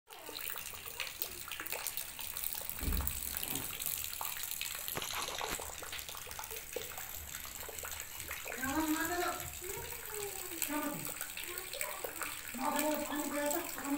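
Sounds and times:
drips on wet concrete: 0.1s - 13.9s
rain: 0.1s - 13.9s
water splashing into tub: 0.1s - 13.9s
low thump: 2.8s - 3.9s.

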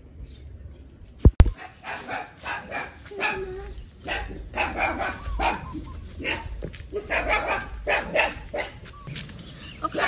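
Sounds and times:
dog barking: 1.5s - 8.9s.

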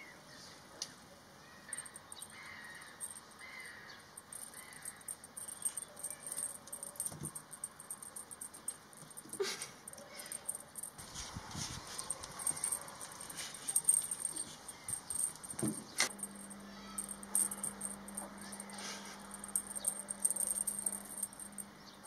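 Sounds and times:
fast high ticking: 4.2s - 11.0s, 12.0s - 21.7s.

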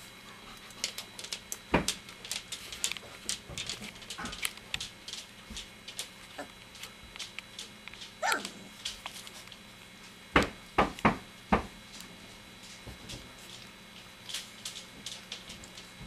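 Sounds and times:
puppy yelping: 8.2s - 8.6s.

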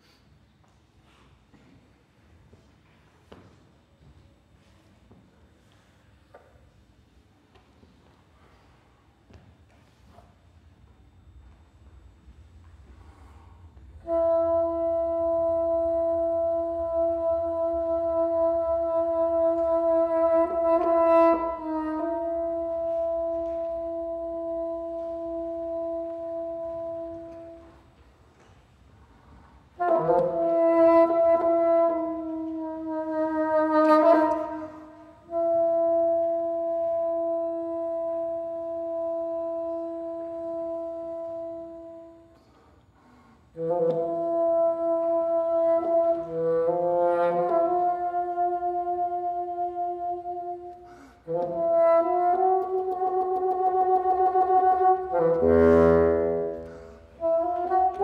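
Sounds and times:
solo bassoon playing: 13.2s - 27.8s, 29.8s - 42.5s, 43.5s - 58.0s.

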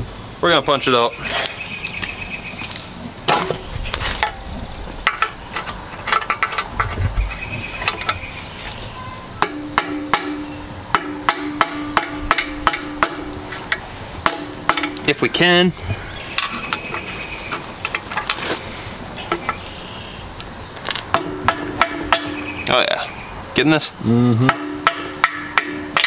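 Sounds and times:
hammer striking metal with ringing: 9.4s - 13.3s, 14.2s - 15.0s, 21.1s - 22.5s, 24.5s - 26.0s.

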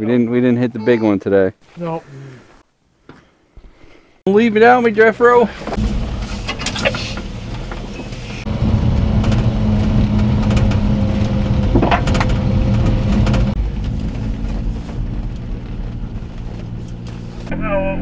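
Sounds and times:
cab clattering over bumps: 5.6s - 17.5s
small truck engine running: 5.6s - 17.6s.

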